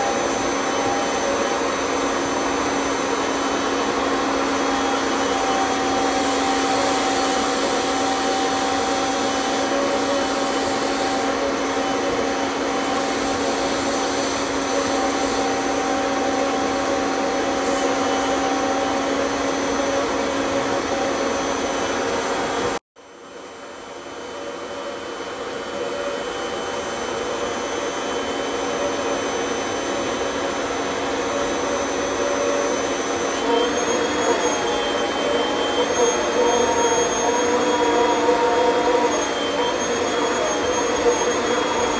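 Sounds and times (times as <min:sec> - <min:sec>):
vacuum cleaner running: 0:00.0 - 0:41.9.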